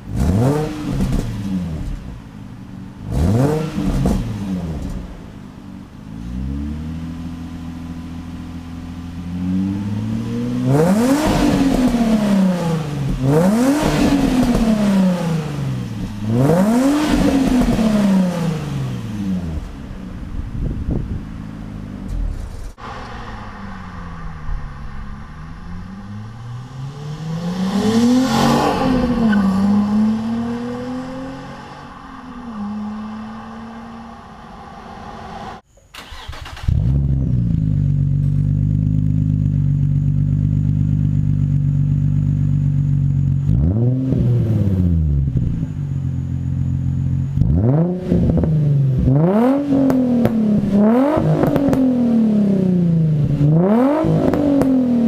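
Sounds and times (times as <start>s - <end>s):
engine revving in sharp blips: 0.0s - 2.1s, 3.0s - 5.2s, 9.3s - 19.8s, 22.1s - 39.5s, 43.3s - 45.8s, 47.0s - 55.0s
car engine idling: 1.8s - 3.1s, 12.1s - 43.8s, 45.2s - 47.5s
car engine accelerating past: 22.3s - 37.4s.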